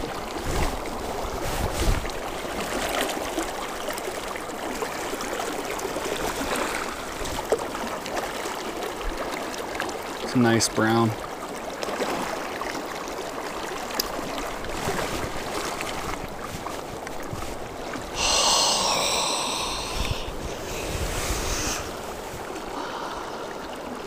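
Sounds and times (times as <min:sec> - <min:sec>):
wind buffeting microphone: 0:00.0 - 0:02.3, 0:19.6 - 0:22.6
river water rushing: 0:00.0 - 0:24.0
water splashing: 0:00.0 - 0:24.0.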